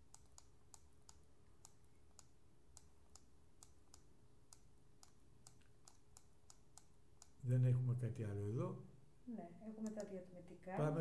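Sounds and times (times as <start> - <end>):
mouse scroll wheel clicks: 9.8 - 10.2.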